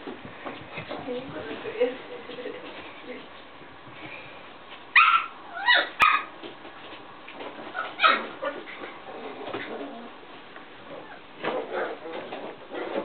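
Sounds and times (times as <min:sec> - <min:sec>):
puppy yipping and whimpering: 0:05.0 - 0:06.3, 0:07.8 - 0:08.6.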